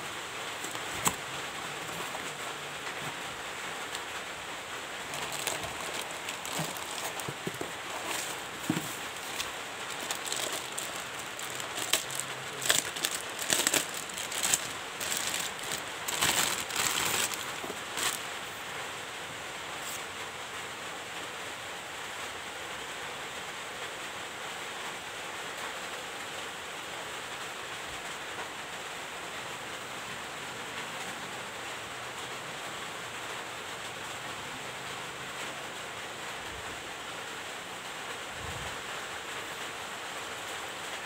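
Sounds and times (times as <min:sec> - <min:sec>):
steady hiss: 0:00.0 - 0:30.5
plastic packaging crinkling: 0:00.4 - 0:04.2, 0:04.9 - 0:18.5.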